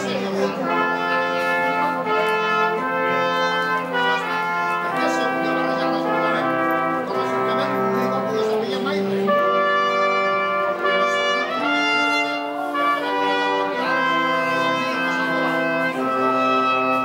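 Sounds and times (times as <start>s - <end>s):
brass quartet playing chords: 0.0s - 17.0s.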